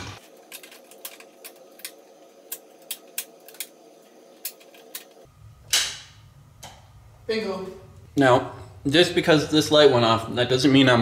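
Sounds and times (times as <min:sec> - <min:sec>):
steady low hum: 0:00.0 - 0:10.6
circuit breakers clicking: 0:04.4 - 0:06.8.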